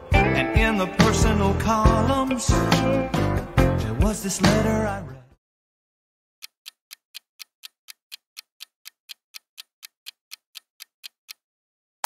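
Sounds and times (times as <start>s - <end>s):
clock ticking: 6.4s - 11.4s.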